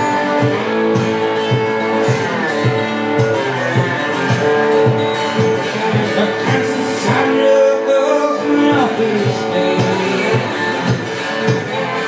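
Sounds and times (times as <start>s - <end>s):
guitar-led music with steady beat: 0.0s - 12.0s.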